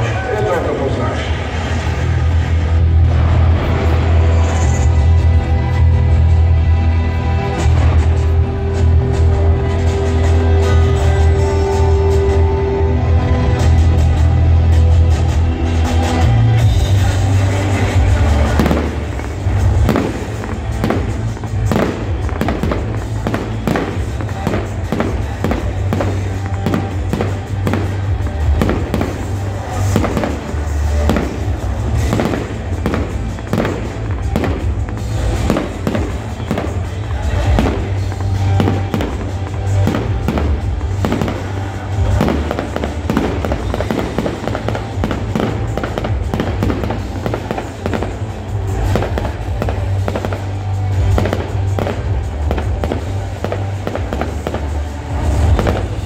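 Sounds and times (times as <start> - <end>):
fireworks bangs and crackles: 0.0 - 56.0
loud music playing: 0.0 - 56.0.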